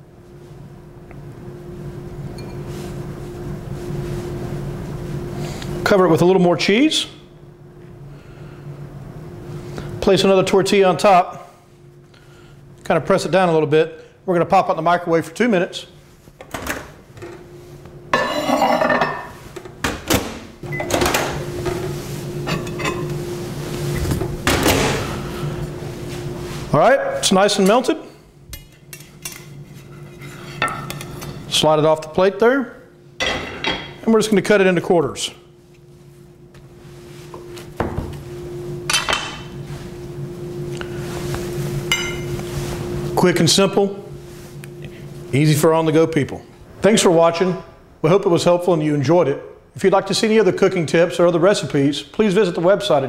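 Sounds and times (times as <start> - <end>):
microwave humming: 0.0 - 29.7, 30.7 - 49.6
plate clattering: 18.2 - 19.4
microwave door shutting: 19.9 - 21.5.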